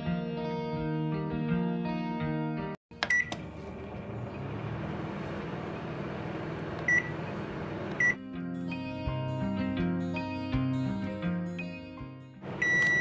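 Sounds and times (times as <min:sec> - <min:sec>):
microwave beep: 0:02.9 - 0:04.2, 0:06.5 - 0:08.2, 0:12.4 - 0:13.0
microwave clicks: 0:02.9 - 0:04.2, 0:06.4 - 0:08.2
microwave humming: 0:02.9 - 0:08.2, 0:12.4 - 0:13.0.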